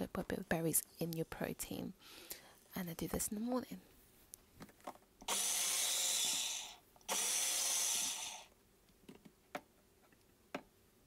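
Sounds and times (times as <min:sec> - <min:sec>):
blender running: 0:05.2 - 0:08.5.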